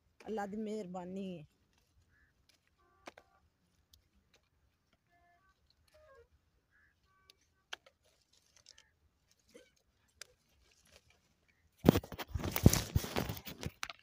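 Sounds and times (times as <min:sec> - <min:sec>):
leaves rustling: 0:05.5 - 0:13.8.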